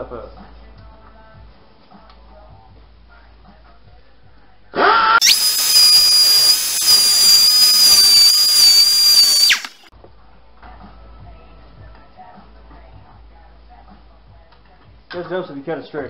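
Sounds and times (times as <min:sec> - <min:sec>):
angle grinder cutting a bolt: 0:04.8 - 0:09.9.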